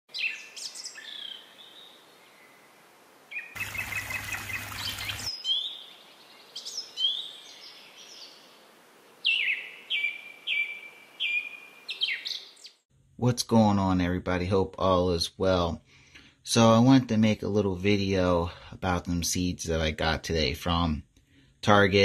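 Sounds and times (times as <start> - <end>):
birds chirping: 3.3 - 8.5, 9.2 - 12.8.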